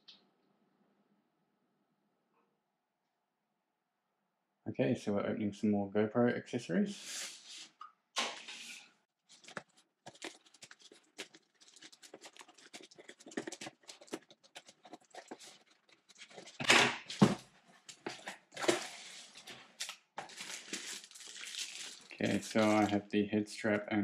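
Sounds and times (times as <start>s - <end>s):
packaging rustling and crinkling: 9.3s - 23.0s.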